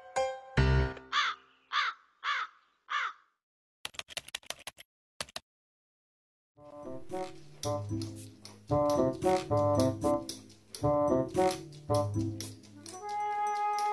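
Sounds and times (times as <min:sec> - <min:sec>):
crow cawing: 0:01.1 - 0:03.3.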